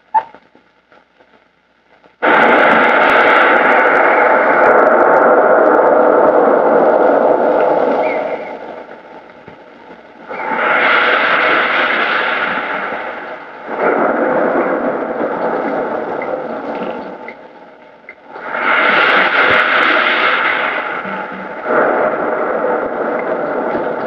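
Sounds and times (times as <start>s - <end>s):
waves breaking on shore: 10.2s - 17.4s, 18.1s - 24.0s.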